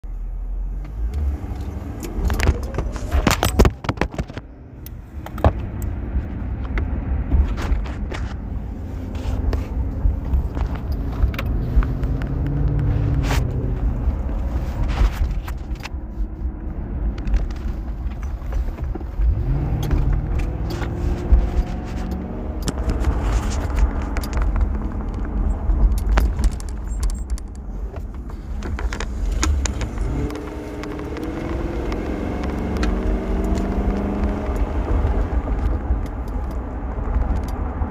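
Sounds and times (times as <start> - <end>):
car road and engine rumble: 0.0 - 37.9
light clicks and rattles: 17.0 - 37.8.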